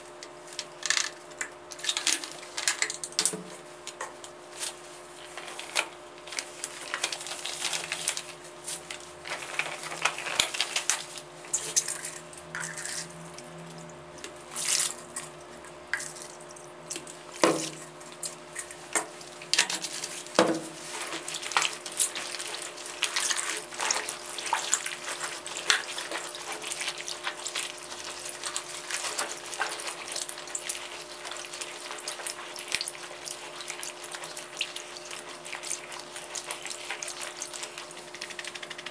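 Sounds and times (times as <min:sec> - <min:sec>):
water sloshing and splashing: 0:14.5 - 0:38.9.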